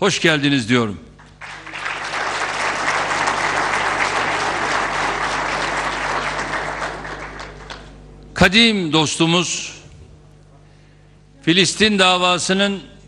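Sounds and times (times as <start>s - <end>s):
audience applauding: 1.2s - 8.0s.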